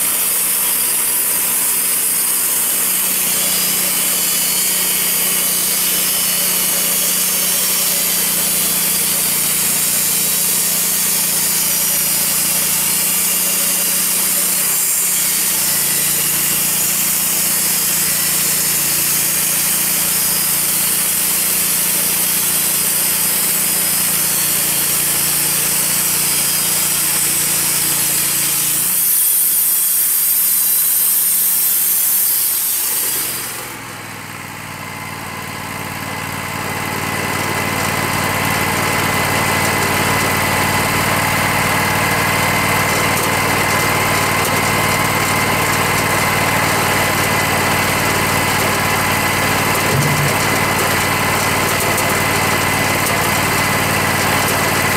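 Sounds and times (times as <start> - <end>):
band saw blade hissing: 0.0 - 33.9
sawmill engine running: 0.0 - 54.9.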